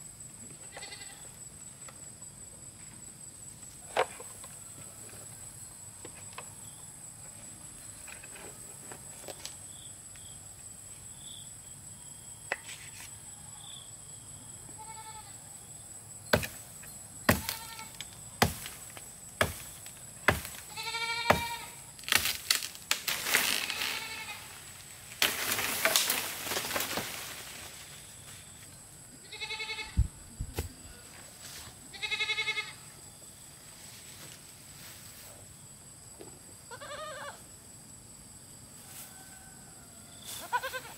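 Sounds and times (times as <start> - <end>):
animal bleating: 0.6 - 1.3, 14.8 - 15.4, 17.4 - 18.0, 20.7 - 21.8, 23.6 - 24.6, 29.2 - 30.0, 31.9 - 32.8, 36.7 - 37.4, 40.4 - 40.9
leaves and branches rustling: 17.3 - 28.8, 33.6 - 35.4.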